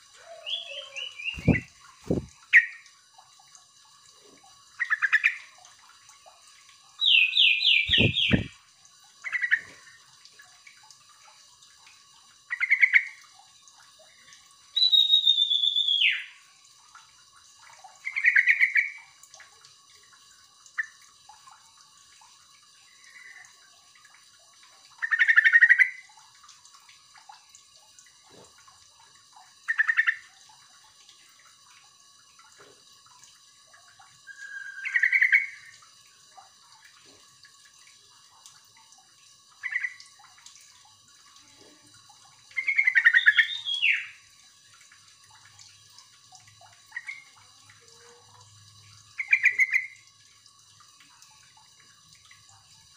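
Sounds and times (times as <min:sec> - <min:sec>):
bulbul chirping calls: 0:00.2 - 0:01.7, 0:07.0 - 0:08.5, 0:42.6 - 0:44.1.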